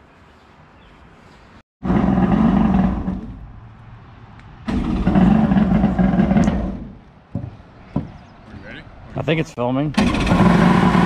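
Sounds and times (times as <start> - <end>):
jet boat engine revving: 1.8 - 3.4, 4.7 - 6.8, 10.0 - 11.0.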